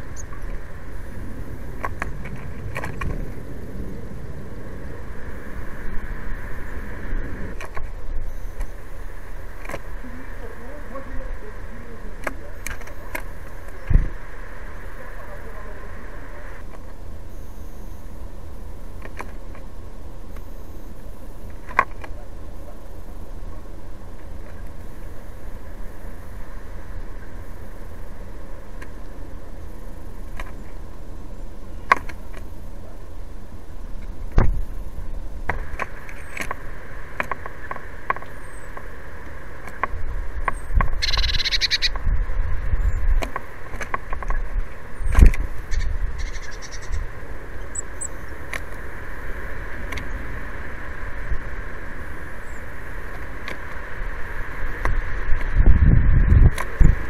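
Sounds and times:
low rumble: 0.0s - 18.9s
birds pecking on plastic trays: 35.4s - 38.9s, 43.2s - 45.6s.

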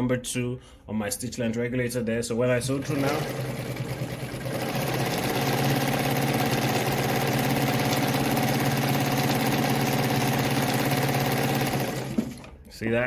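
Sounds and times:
sewing machine running: 2.7s - 12.6s.

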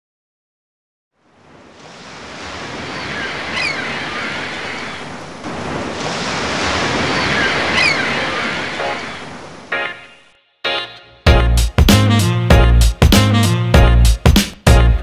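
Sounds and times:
waves washing: 1.2s - 10.8s.

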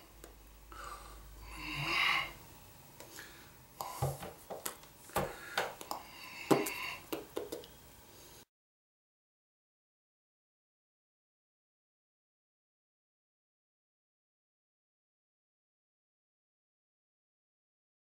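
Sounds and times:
man hissing breath: 0.7s - 2.4s, 5.2s - 7.1s.

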